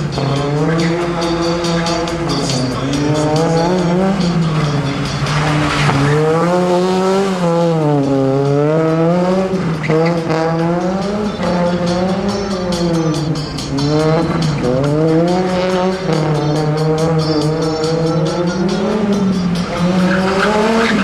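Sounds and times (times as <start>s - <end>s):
car engine revving: 0.0s - 21.0s.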